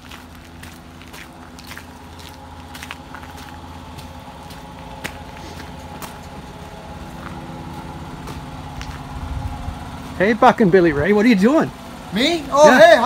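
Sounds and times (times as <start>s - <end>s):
footsteps crunching on gravel: 0.0s - 10.3s
engine hum: 0.0s - 13.0s.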